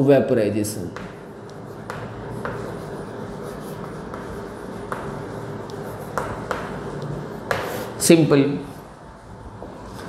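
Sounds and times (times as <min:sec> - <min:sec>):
steady background hum: 0:00.0 - 0:10.0
chalk tapping: 0:00.8 - 0:08.8
chalk scratching on chalkboard: 0:00.9 - 0:08.9.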